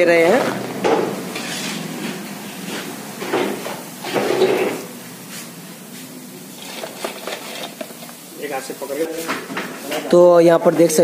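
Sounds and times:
oil sizzling: 0.0s - 10.2s
metal ladle scraping and clattering: 1.3s - 1.9s, 6.6s - 8.1s.

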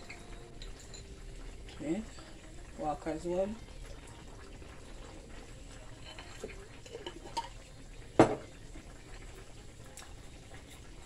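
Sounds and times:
fish simmering in a pan: 0.0s - 11.0s
utensil clinking on cookware: 0.2s - 1.2s, 5.9s - 8.5s.

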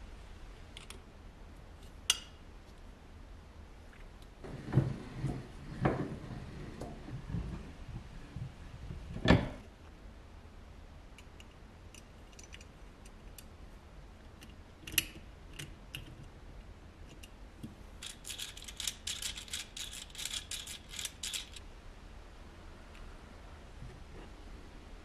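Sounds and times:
wind-up toy gear clicking: 18.0s - 21.6s.

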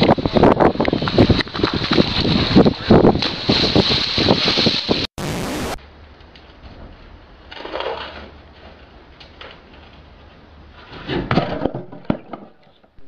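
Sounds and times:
hissing static: 2.7s - 5.8s.

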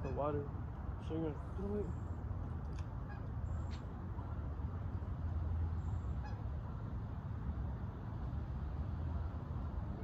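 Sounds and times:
duck or goose call: 6.2s - 6.4s.

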